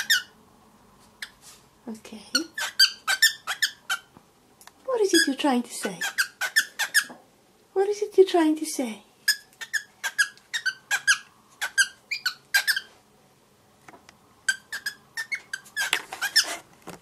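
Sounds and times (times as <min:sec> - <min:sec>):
cockatiel chirping: 0:00.0 - 0:00.4, 0:02.4 - 0:04.1, 0:05.9 - 0:07.2, 0:09.3 - 0:13.0, 0:14.4 - 0:16.6.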